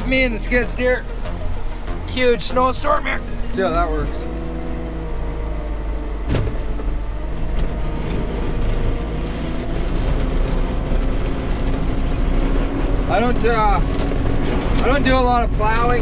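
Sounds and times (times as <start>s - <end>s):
diesel engine running: 0.0s - 16.0s
clunk: 6.3s - 6.8s.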